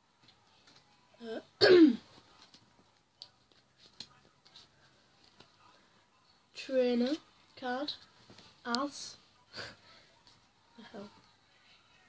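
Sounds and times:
boy clearing his throat: 0:01.6 - 0:02.0.

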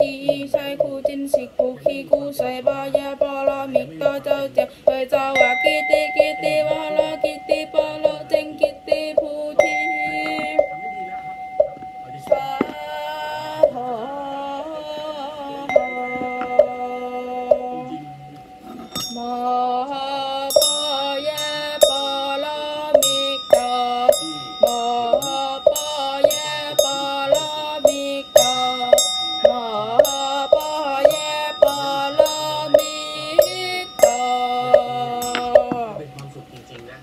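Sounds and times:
man chanting: 0:00.0 - 0:15.8, 0:16.6 - 0:37.0
hand bell ringing: 0:05.4 - 0:12.9, 0:15.7 - 0:36.4
bowl bell struck with mallet: 0:05.4 - 0:13.8, 0:15.7 - 0:36.6.

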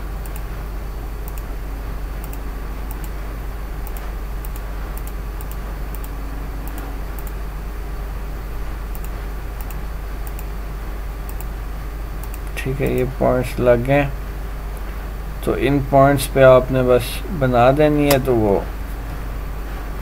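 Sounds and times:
low electrical hum and hiss: 0:00.0 - 0:20.0
computer mouse clicking: 0:00.2 - 0:00.5, 0:01.2 - 0:01.5, 0:02.2 - 0:03.2, 0:03.8 - 0:07.4, 0:08.9 - 0:10.5, 0:11.3 - 0:11.5, 0:12.2 - 0:13.1.

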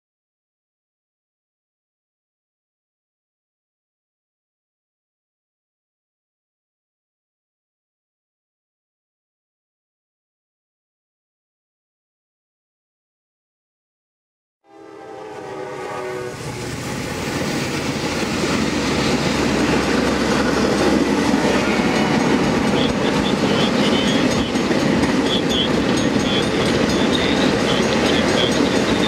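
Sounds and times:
locomotive horn: 0:14.6 - 0:16.9, 0:25.2 - 0:29.0
train cars rumbling past: 0:14.7 - 0:29.0
wheels clickety-clack: 0:16.7 - 0:29.0.

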